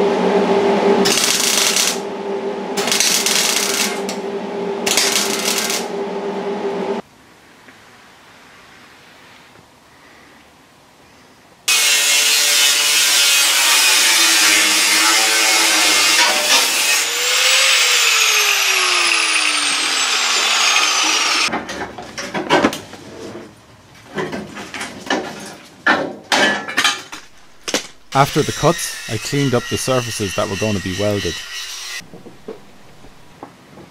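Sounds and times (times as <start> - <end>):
angle grinder cutting steel: 4.9 - 5.9, 11.7 - 21.5, 27.2 - 33.3.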